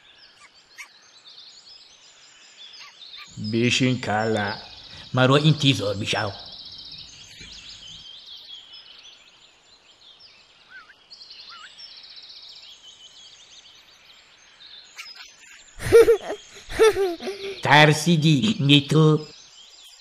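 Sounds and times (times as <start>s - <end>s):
birds chirping: 0.0s - 20.0s
boy's voice: 15.8s - 18.1s.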